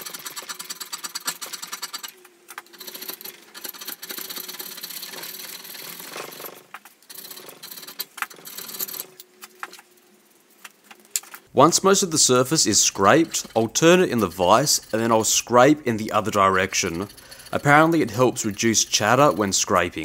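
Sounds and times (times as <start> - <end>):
hand scraper rasping on metal: 12.2 - 19.8.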